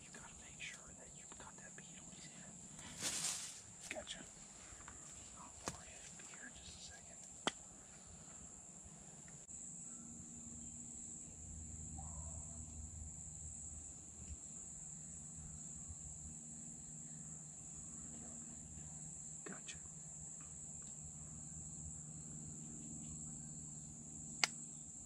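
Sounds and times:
high-pitched insect trill: 0:00.0 - 0:07.4, 0:08.2 - 0:25.0
sharp click: 0:24.4 - 0:24.6.

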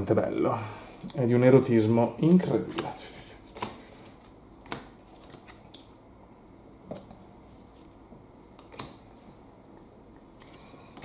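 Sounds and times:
trading cards clicking and snapping: 0:02.6 - 0:06.0, 0:08.5 - 0:09.1.

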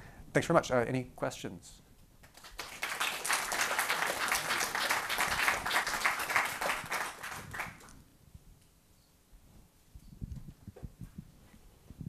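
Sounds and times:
audience applauding: 0:02.2 - 0:08.0.

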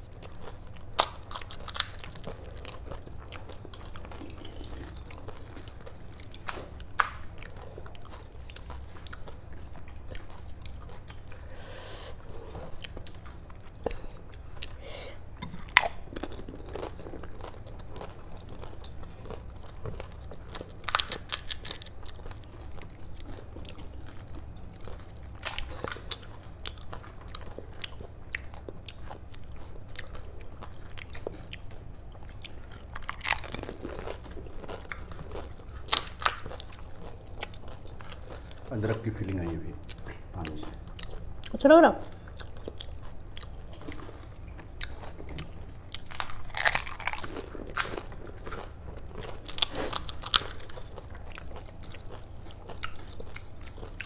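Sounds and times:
crisp shells crunching when bitten: 0:20.1 - 0:22.5, 0:45.9 - 0:54.0.

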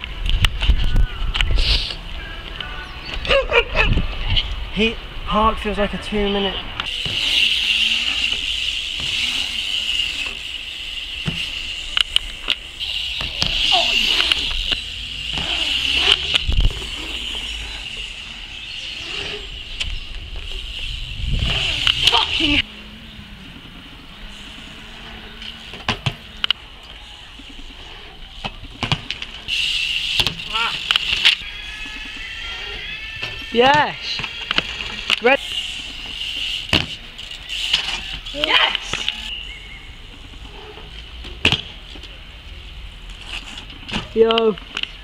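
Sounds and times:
bike clicks: 0:06.8 - 0:22.6, 0:25.1 - 0:31.4, 0:34.2 - 0:45.0.

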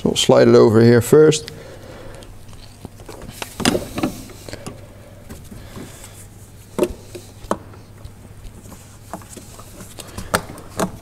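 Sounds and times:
steady low hum: 0:00.0 - 0:11.0
gloves rubbing on hose: 0:06.0 - 0:10.1.

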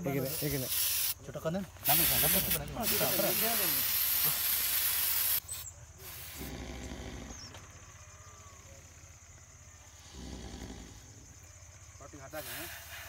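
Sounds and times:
aerosol spray can hissing: 0:00.2 - 0:01.2, 0:01.8 - 0:06.6, 0:12.4 - 0:13.0.

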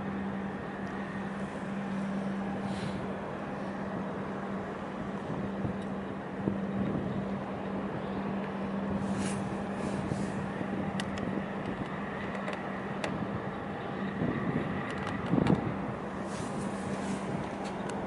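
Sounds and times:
low engine hum: 0:00.0 - 0:18.0.

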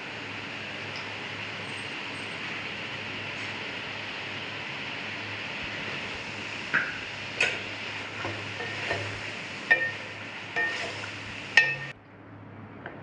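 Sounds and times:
steady hiss: 0:00.0 - 0:11.9
wooden spatula scraping metal pan: 0:07.6 - 0:11.9.

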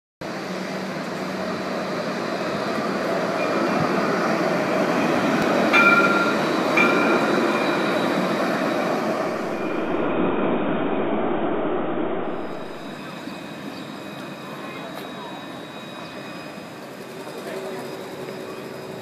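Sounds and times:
tram rolling hum: 0:00.2 - 0:19.0.

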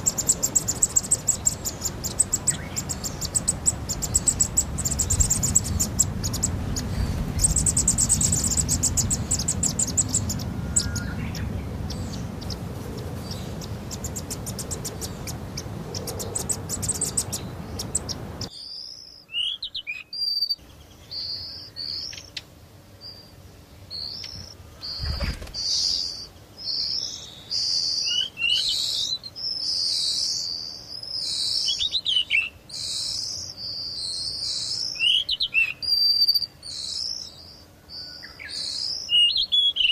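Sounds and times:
steady rushing noise: 0:00.0 - 0:18.5
insects trilling: 0:00.0 - 0:39.9
songbirds chirping: 0:00.0 - 0:39.9.

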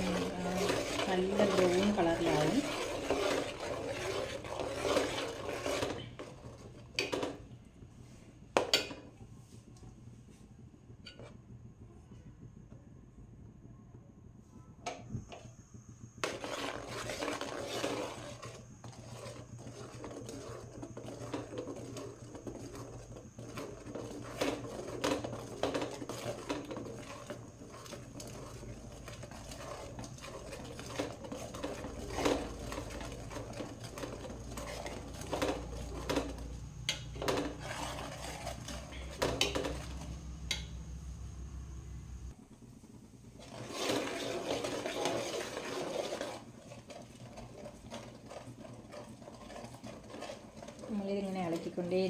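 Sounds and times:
metal ladle scraping a pan: 0:00.0 - 0:07.3, 0:16.2 - 0:40.7, 0:43.4 - 0:51.9.

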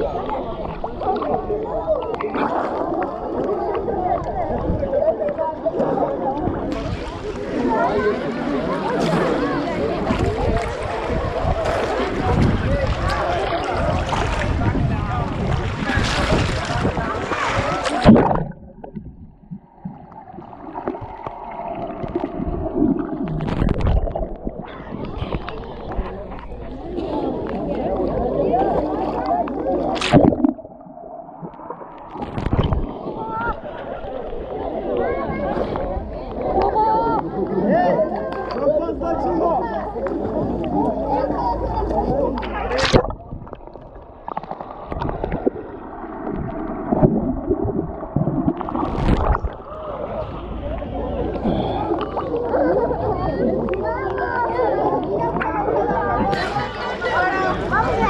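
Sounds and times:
underwater gurgling and rumbling: 0:00.0 - 0:38.5, 0:39.2 - 0:58.0
swimmers splashing: 0:06.6 - 0:18.9
loud splash: 0:09.0 - 0:26.0, 0:29.8 - 0:34.1, 0:42.7 - 0:50.4.

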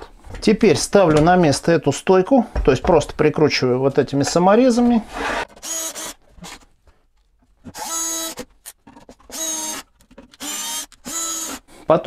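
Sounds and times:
cordless drill motor whining: 0:05.2 - 0:06.2, 0:07.7 - 0:08.4, 0:09.3 - 0:11.7.

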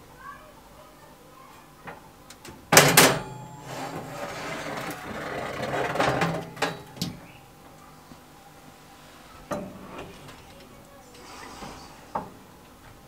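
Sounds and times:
metal oven rack clattering: 0:02.7 - 0:07.3
metal rack rattling scrape: 0:02.8 - 0:07.0.

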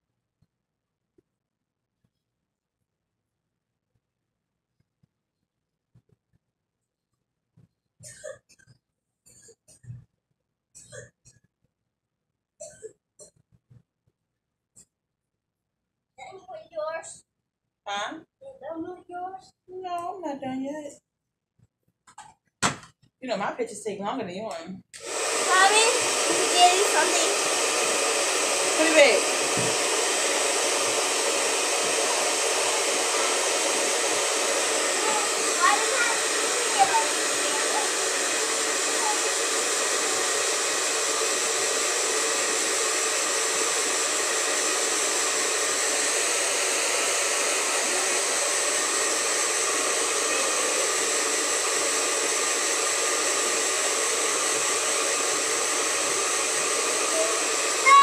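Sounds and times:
hair dryer running: 0:25.0 - 0:58.0.

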